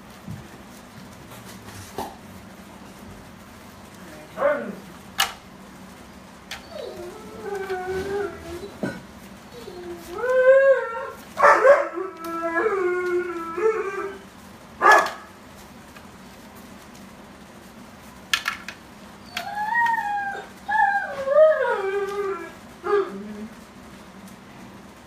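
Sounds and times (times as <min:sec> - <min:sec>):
puppies whining and howling: 0:06.5 - 0:14.3, 0:19.2 - 0:23.6.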